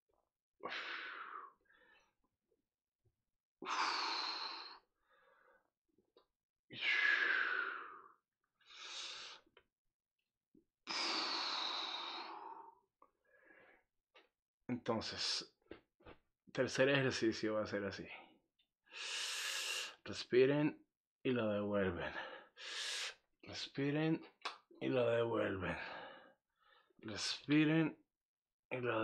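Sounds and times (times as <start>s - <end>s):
man breathing deeply: 0.6s - 2.1s, 3.6s - 5.7s, 6.7s - 9.5s, 10.9s - 13.8s, 18.9s - 20.0s, 22.3s - 23.2s.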